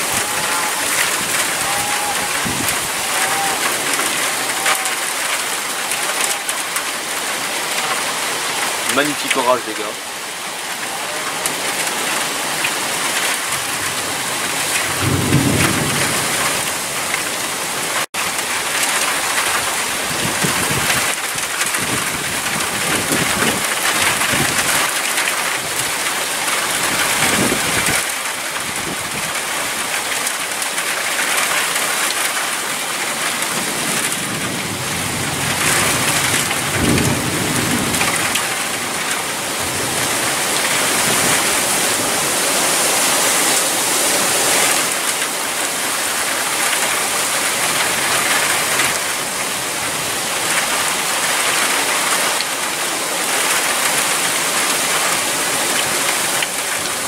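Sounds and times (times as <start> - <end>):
thunder rumbling: 0.0 - 6.6, 13.2 - 17.3, 33.6 - 41.5
heavy rain pouring: 0.0 - 57.0.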